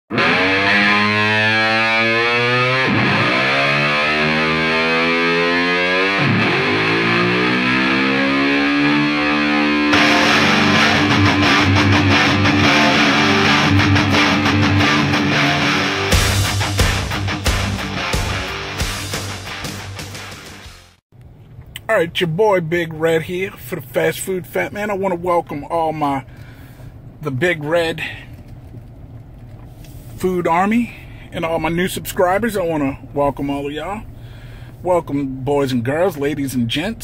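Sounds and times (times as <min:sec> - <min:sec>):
distorted electric guitar: 0:00.1 - 0:21.0
drum beat: 0:16.1 - 0:20.6.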